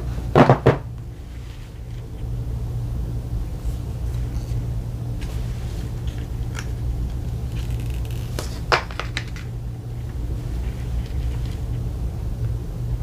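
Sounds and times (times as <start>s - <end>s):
steady low hum: 0.0s - 13.0s
plastic wrap peeling crackles: 5.2s - 11.8s.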